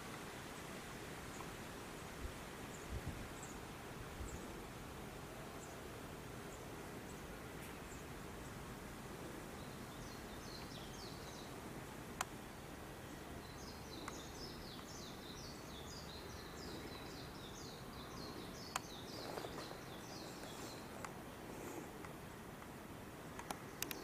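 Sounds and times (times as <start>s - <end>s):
outdoor background noise: 0.0s - 24.0s
bird chirping: 9.6s - 11.6s, 13.0s - 21.8s
sharp clicks: 23.4s - 24.0s.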